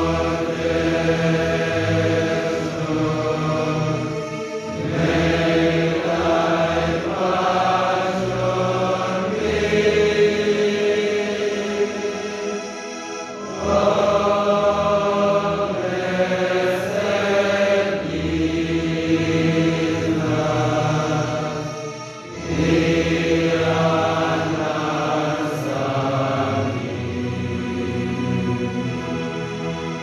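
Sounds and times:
group singing in a hall: 0.0 - 30.0.

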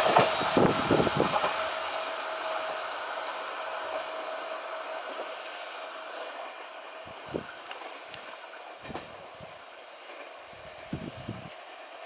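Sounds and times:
train wheel thumps over rail joints: 0.0 - 1.6, 8.7 - 9.4
train running noise: 0.0 - 12.0.

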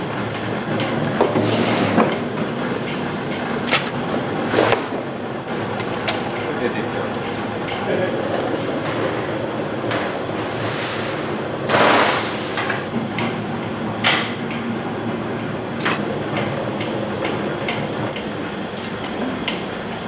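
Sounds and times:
machine running with knocks and clatter: 0.0 - 20.0.

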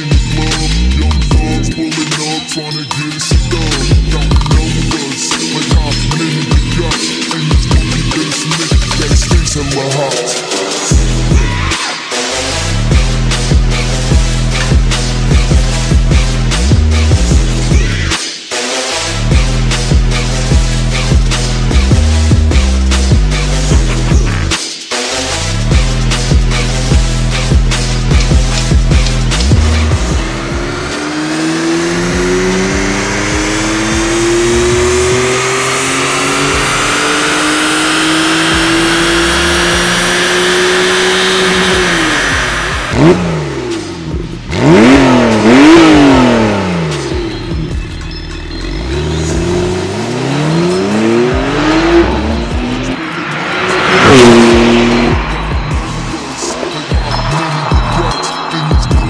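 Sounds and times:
sports car engine accelerating: 25.4 - 59.0
car passing loudly: 29.9 - 43.9, 49.1 - 59.0.

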